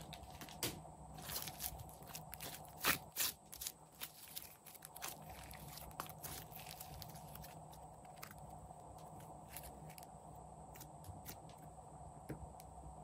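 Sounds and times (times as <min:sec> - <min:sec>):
slime sticky crackles: 0:01.2 - 0:10.0.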